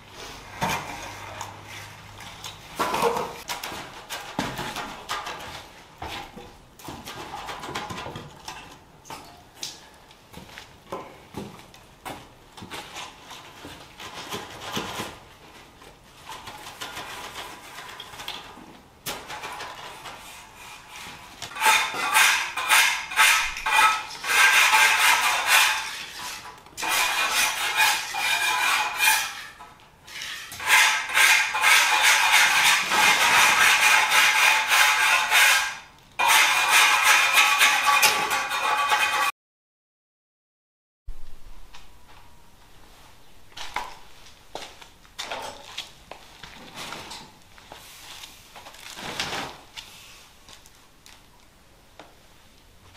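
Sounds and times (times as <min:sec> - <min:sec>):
trowel scraping wet concrete: 0:19.4 - 0:39.3.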